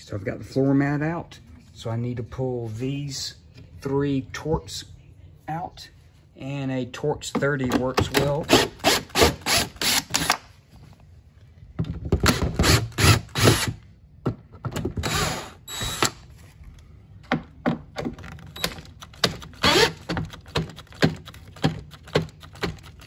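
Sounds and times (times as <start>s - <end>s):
drill motor whirring: 8.5s - 10.4s, 12.6s - 13.8s, 15.0s - 16.2s, 19.5s - 20.1s.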